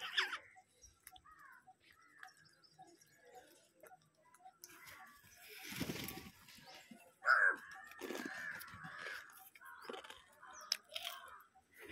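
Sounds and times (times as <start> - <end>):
crows cawing: 1.2 - 2.2, 7.2 - 11.6.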